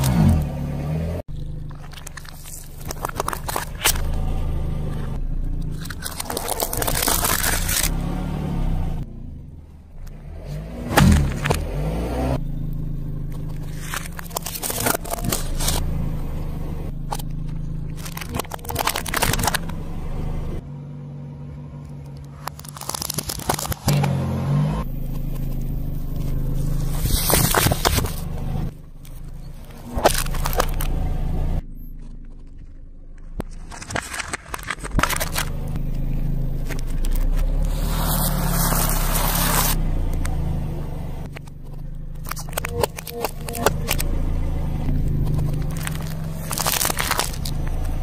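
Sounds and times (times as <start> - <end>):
car engine idling: 0.0 - 48.0
tyre crushing small objects: 1.3 - 4.2, 5.6 - 8.0, 13.2 - 15.9, 16.9 - 19.8, 21.9 - 24.2, 25.0 - 28.3, 29.0 - 31.0, 31.9 - 40.3, 41.3 - 44.1, 44.8 - 48.0.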